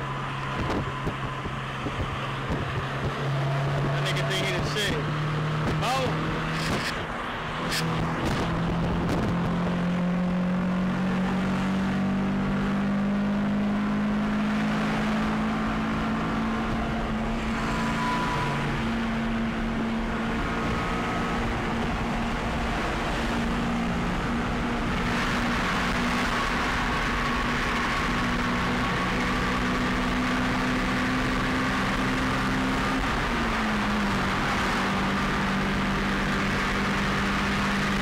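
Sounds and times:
tyre and wind noise: 0.0 - 4.3, 5.3 - 9.9
car engine droning: 0.0 - 38.0.

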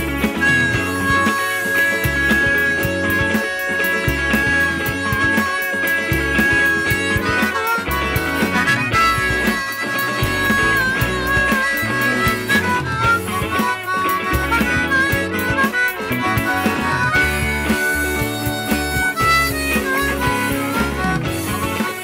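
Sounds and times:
amplified harmonica bending notes: 0.0 - 22.0
rock band playing: 0.0 - 22.0.

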